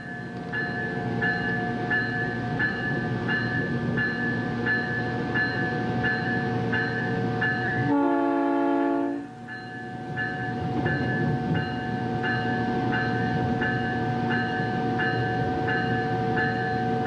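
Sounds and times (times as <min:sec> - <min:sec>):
train running noise: 0:00.0 - 0:17.0
train horn: 0:07.2 - 0:09.5.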